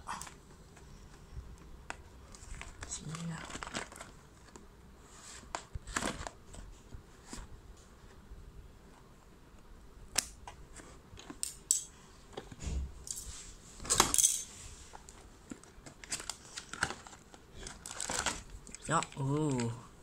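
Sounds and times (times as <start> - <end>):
packaging rustling and scraping: 0.2 - 8.2, 12.2 - 19.8.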